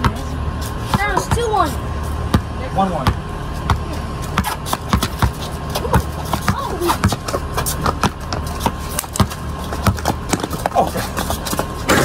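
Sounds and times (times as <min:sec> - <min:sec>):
basketball bouncing on concrete: 0:00.0 - 0:12.0
steady low hum: 0:00.0 - 0:12.0
sneaker footsteps and scuffs: 0:03.5 - 0:12.0.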